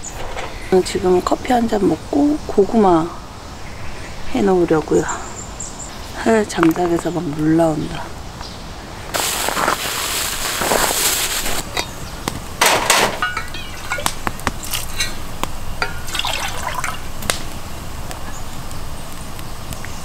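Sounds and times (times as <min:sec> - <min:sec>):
wood fire hissing and crackling: 0:00.0 - 0:20.0
sharp fire pops: 0:13.9 - 0:16.2, 0:17.1 - 0:19.9
drink pouring into a mug: 0:16.1 - 0:17.0.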